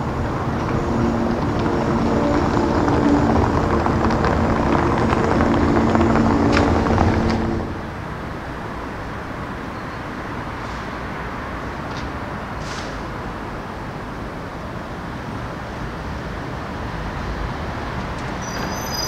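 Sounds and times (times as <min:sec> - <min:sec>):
vehicle engine humming: 0:00.0 - 0:10.6
street hiss: 0:06.4 - 0:19.0.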